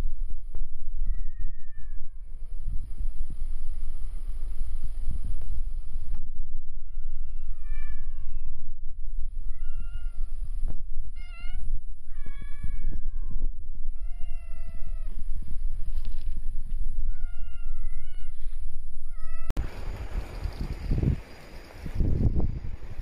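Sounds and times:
low microphone rumble: 0.0 - 23.0
cat meowing: 9.4 - 10.4, 11.1 - 15.2, 17.1 - 19.5.

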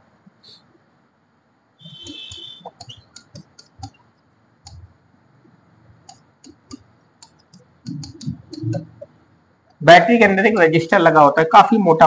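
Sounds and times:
marker tapping on a board: 1.9 - 4.0, 6.0 - 9.1.

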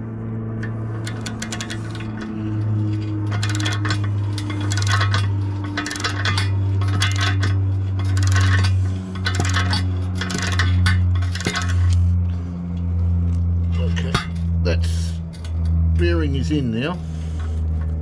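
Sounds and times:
steady low hum: 0.0 - 18.0
ratchet wrench clicking: 1.0 - 2.3, 3.3 - 12.0.

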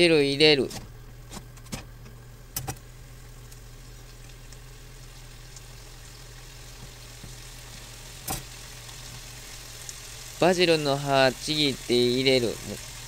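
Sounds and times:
steady low hum: 0.0 - 13.0
water simmering in frying pan: 2.8 - 13.0.

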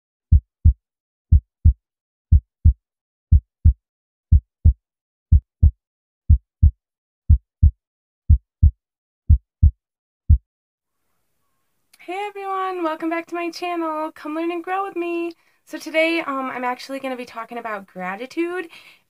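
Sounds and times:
heartbeat thumps: 0.3 - 10.5.

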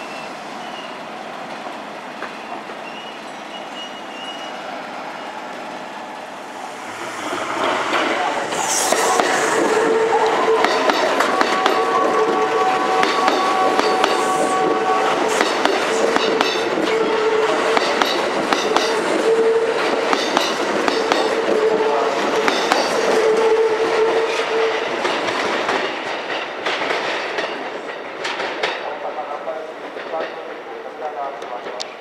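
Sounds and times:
steady train tone: 0.0 - 26.6
train wheels clacking over rail joints: 7.0 - 30.6.

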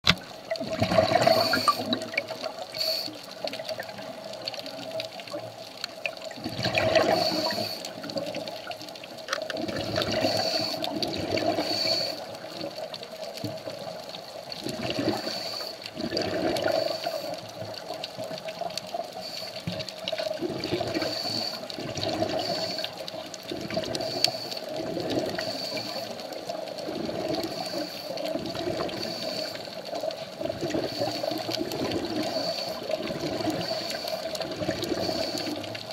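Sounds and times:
diver exhaling bubbles underwater: 0.5 - 2.4, 6.3 - 8.4, 9.6 - 12.1, 14.6 - 15.3, 16.0 - 17.0, 20.3 - 21.1, 21.8 - 22.8, 30.3 - 35.6.

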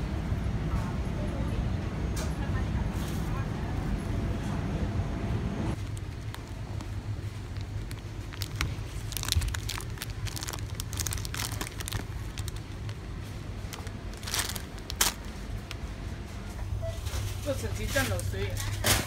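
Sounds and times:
steady low hum: 0.0 - 19.0
plastic candy bags crinkling: 5.8 - 16.0.

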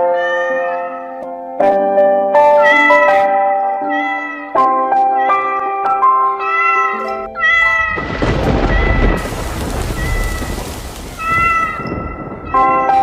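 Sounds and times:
cat meowing: 0.0 - 1.0, 3.8 - 9.3, 11.2 - 11.9
background music: 0.0 - 8.6, 11.8 - 13.0
deep rumbling and rushing: 7.6 - 12.6.

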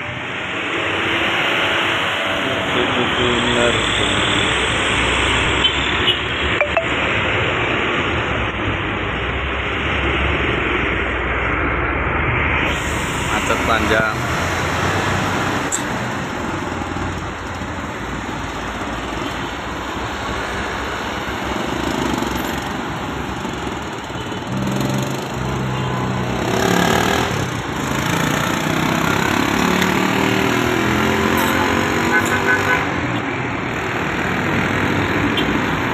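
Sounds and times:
road traffic passing: 0.0 - 35.9
tyre noise on road: 7.4 - 35.9.

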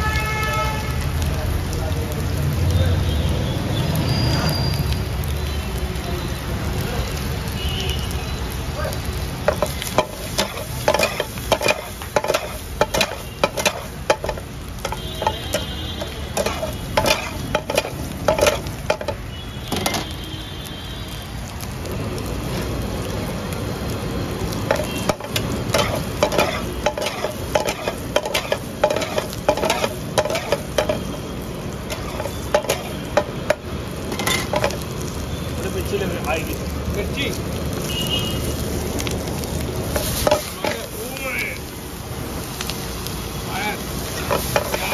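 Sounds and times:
meat sizzling in a frying pan: 0.0 - 44.9
metal spatula scraping a pan: 9.5 - 19.2, 24.7 - 31.1, 31.8 - 33.4, 34.1 - 34.8, 39.9 - 40.9.

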